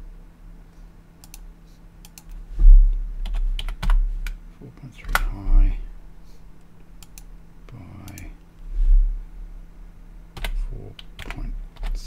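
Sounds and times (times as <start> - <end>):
computer keyboard typing: 3.2 - 4.0, 10.4 - 12.0.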